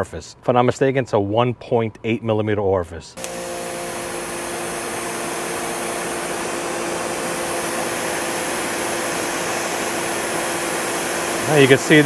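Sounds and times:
pressure washer motor hum: 3.2 - 12.0.

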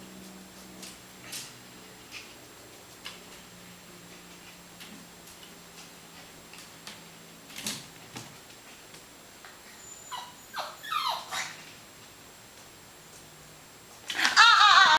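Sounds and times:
puppy yipping: 9.8 - 11.6, 14.3 - 14.9.

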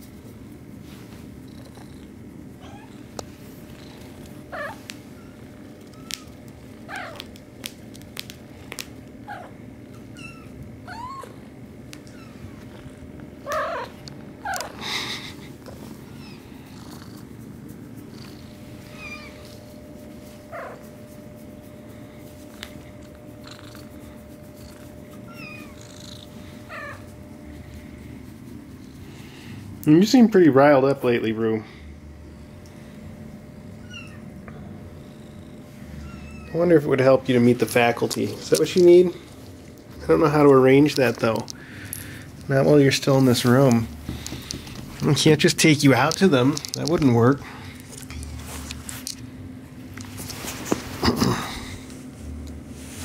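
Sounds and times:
cat purring: 1.1 - 7.3, 12.2 - 19.6, 22.0 - 29.6.

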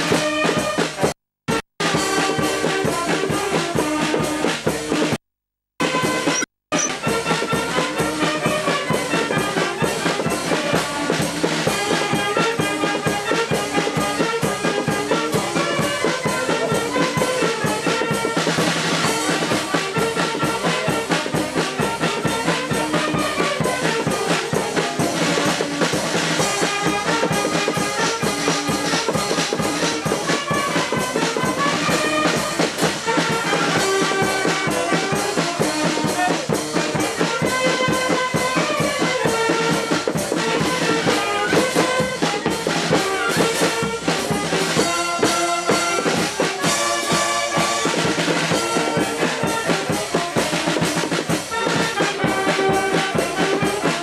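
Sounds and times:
wind band playing: 0.0 - 5.1, 5.8 - 54.0
marching drums: 0.0 - 5.2, 5.8 - 54.0.

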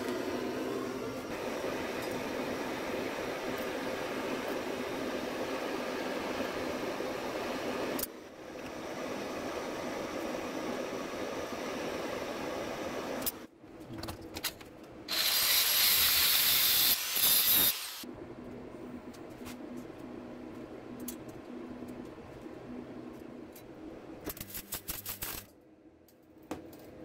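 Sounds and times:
loud hiss: 15.1 - 18.0.

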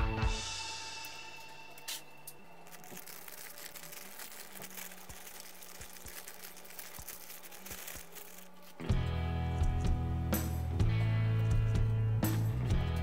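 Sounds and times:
plastic bag crinkling: 1.7 - 8.9.

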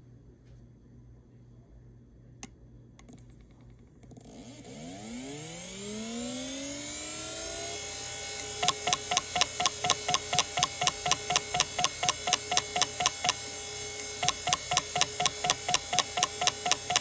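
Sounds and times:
spindle motor whine: 4.2 - 17.0.

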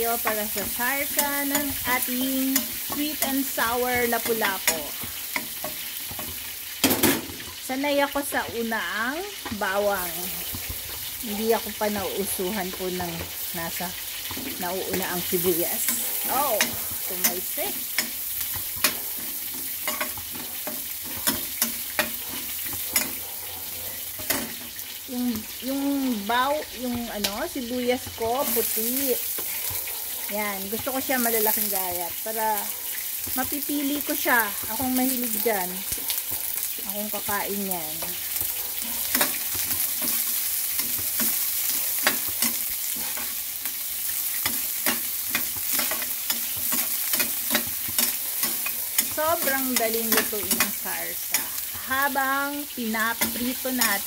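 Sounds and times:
oil sizzling: 0.0 - 54.0
metal spoon scraping pan: 0.1 - 7.6, 14.2 - 23.3, 24.0 - 24.9, 37.9 - 52.1.

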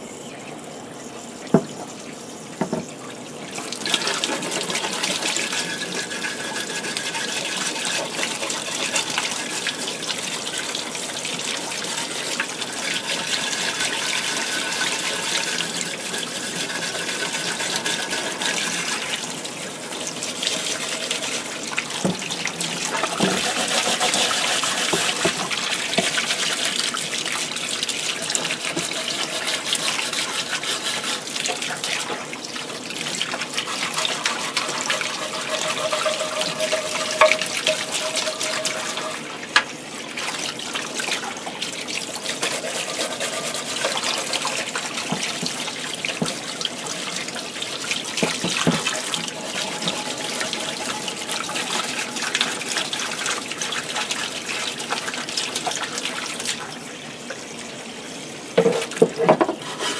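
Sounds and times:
faucet water splashing: 2.6 - 57.6
brush scrubbing: 3.9 - 10.4, 11.6 - 19.2, 22.7 - 32.2, 33.4 - 39.2, 42.1 - 45.6, 48.2 - 53.3, 59.6 - 59.9.

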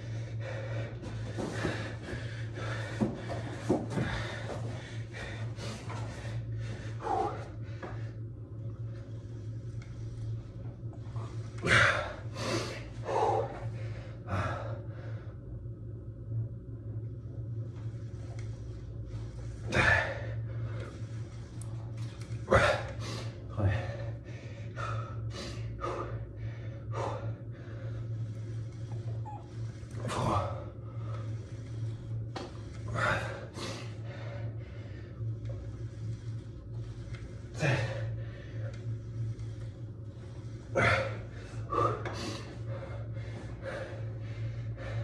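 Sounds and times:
man breathing hard: 0.0 - 8.4, 11.3 - 15.5, 22.4 - 45.0
steady low hum: 0.0 - 45.0.

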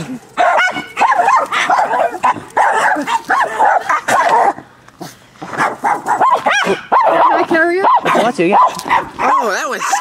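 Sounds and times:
dog barking: 0.4 - 4.6, 5.5 - 10.0.

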